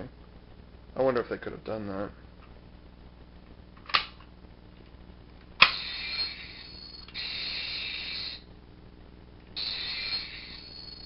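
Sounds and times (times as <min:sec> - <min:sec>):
high electronic buzz: 0:05.6 - 0:08.5, 0:09.6 - 0:11.0.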